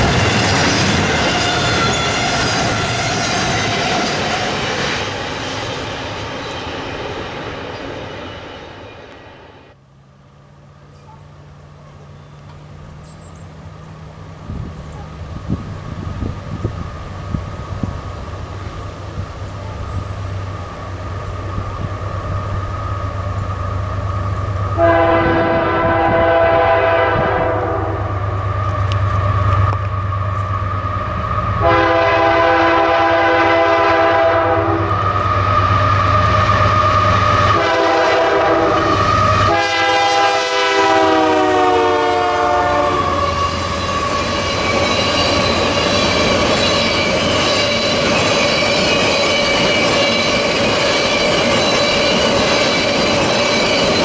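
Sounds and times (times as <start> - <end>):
high wheel squeal: 0.0 - 9.7, 34.8 - 37.6, 38.6 - 39.6, 42.8 - 54.0
locomotive engines rumbling: 0.0 - 54.0
locomotive air horn blasts: 24.7 - 28.2, 31.6 - 35.0, 37.5 - 44.2.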